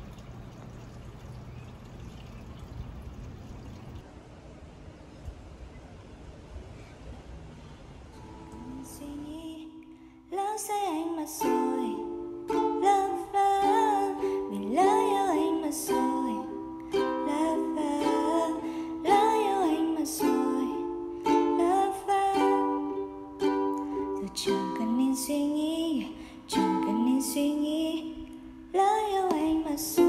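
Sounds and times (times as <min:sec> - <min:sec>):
plucked ukulele music: 0:10.9 - 0:30.0.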